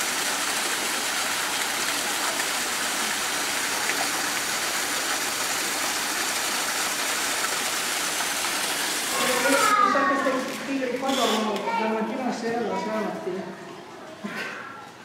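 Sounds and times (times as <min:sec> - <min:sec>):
running water rushing: 0:00.0 - 0:11.4.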